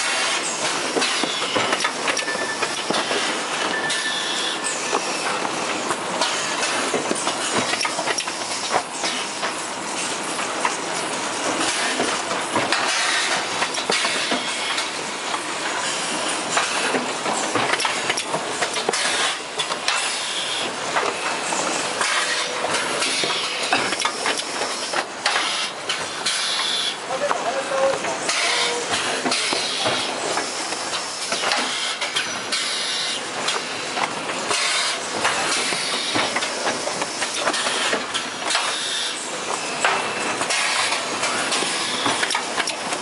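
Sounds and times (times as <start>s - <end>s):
machine clatter: 0.0s - 43.0s.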